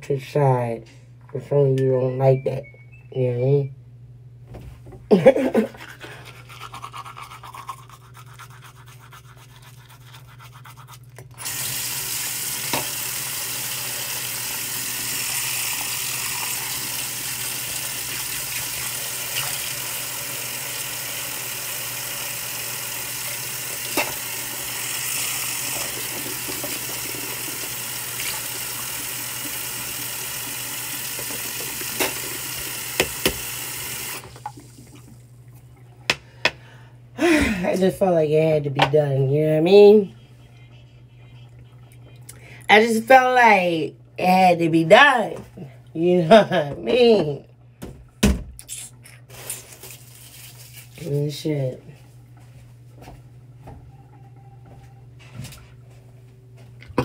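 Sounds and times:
toothbrush brushing hiss: 6.0s - 11.6s.

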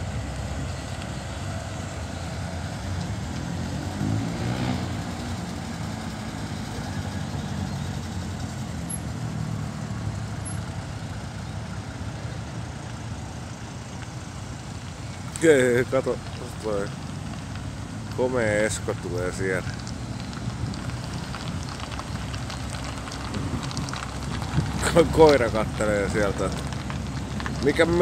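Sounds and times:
cars driving past slowly: 0.0s - 28.0s.

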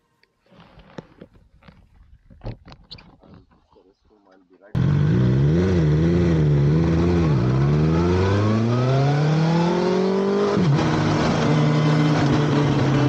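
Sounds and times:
motorcycle engine accelerating: 4.8s - 13.0s.

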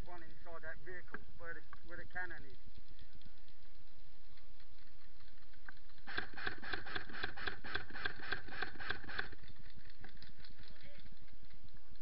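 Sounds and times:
airsoft rifle full-auto burst: 6.0s - 10.7s.

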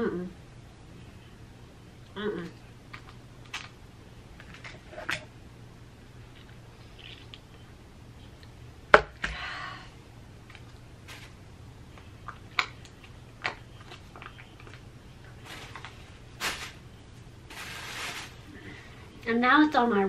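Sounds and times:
paper napkin rustling: 15.3s - 16.8s, 17.4s - 18.9s.

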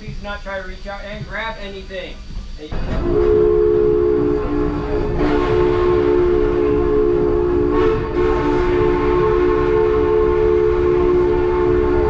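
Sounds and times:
train rumbling: 0.0s - 12.0s
steam locomotive chime whistle: 2.8s - 12.0s.

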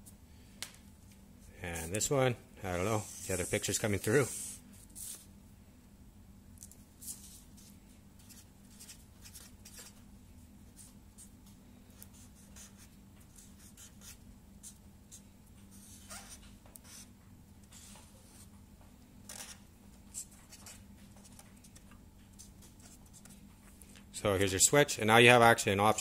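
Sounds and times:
marker scratching on paper: 2.9s - 5.2s, 12.0s - 17.1s.

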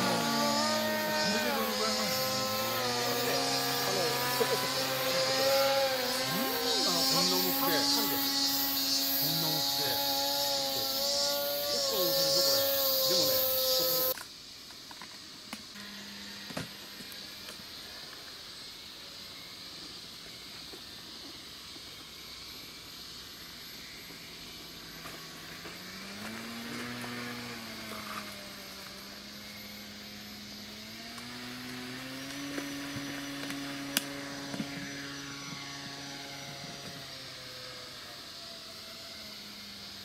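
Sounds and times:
model plane motor whining: 0.0s - 14.2s, 23.6s - 40.0s.

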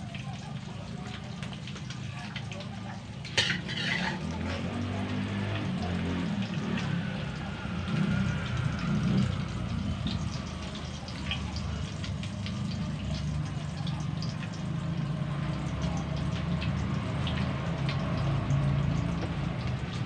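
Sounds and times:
eggs frying in oil: 0.0s - 20.0s
oil popping and crackling: 0.0s - 20.0s.

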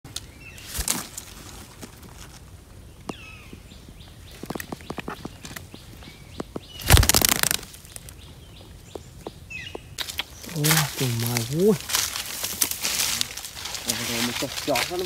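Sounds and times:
flurry of wingbeats: 6.8s - 8.1s.

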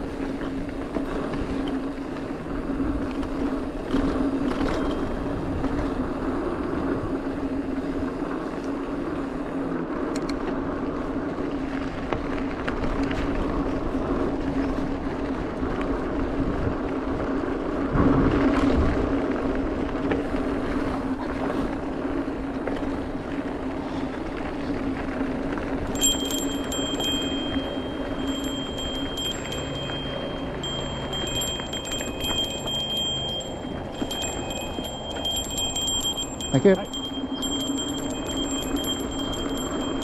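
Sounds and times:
bike tyres on dirt and gravel: 0.0s - 40.0s
small rattles: 25.8s - 40.0s.

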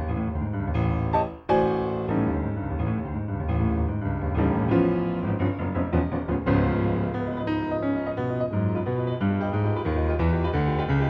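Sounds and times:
piano playing quick notes: 0.7s - 2.8s.

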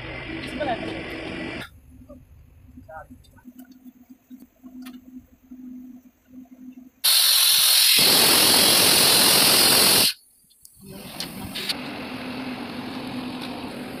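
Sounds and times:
compressed air hissing from hose: 7.0s - 10.2s.

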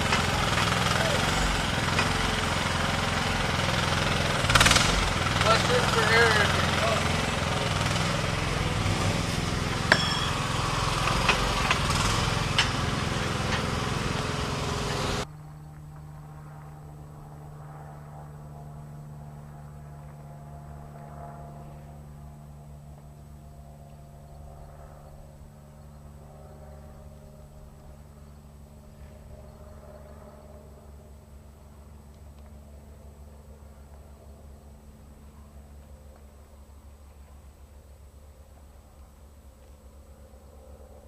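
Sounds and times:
engine-like rumble: 0.0s - 41.0s
sharp knocks: 9.8s - 13.7s.

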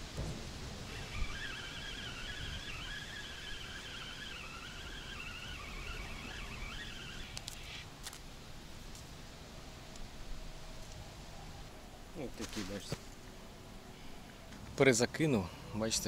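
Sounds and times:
fishing reel whirring: 0.9s - 8.2s.

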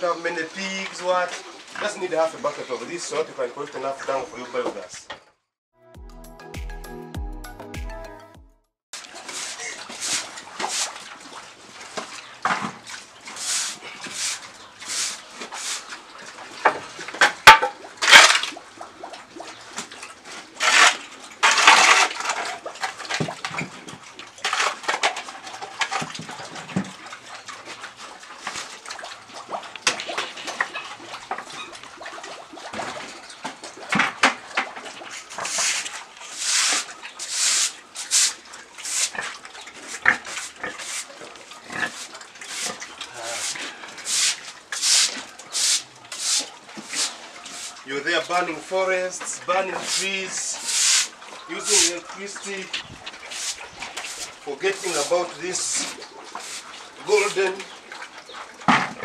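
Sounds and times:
spade scraping floor: 9.0s - 11.0s, 11.9s - 15.9s, 20.6s - 23.7s, 35.1s - 39.3s, 39.9s - 47.8s, 49.3s - 57.3s
broom sweeping floor: 9.2s - 11.0s, 13.3s - 15.9s, 35.4s - 39.2s, 40.4s - 41.1s, 43.4s - 47.8s, 49.8s - 51.9s, 53.3s - 56.7s.

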